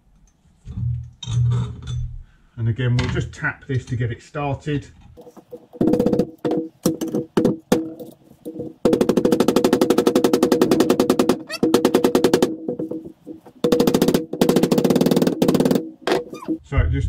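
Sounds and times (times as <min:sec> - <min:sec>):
hammer tapping metal bush: 0:05.2 - 0:16.6.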